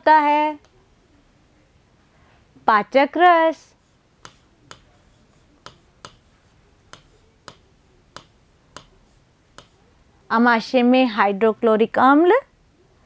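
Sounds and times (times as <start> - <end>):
stylus tapping on screen: 4.2 - 9.8.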